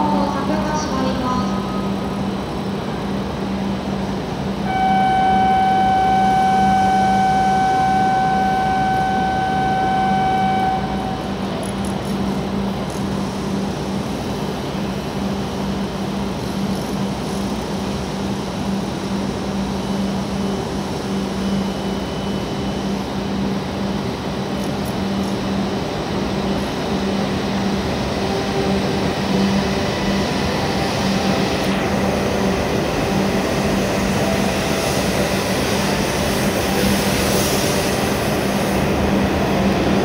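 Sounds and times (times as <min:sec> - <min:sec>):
train low hum: 0:00.0 - 0:40.0
steady electronic tone: 0:04.6 - 0:12.7.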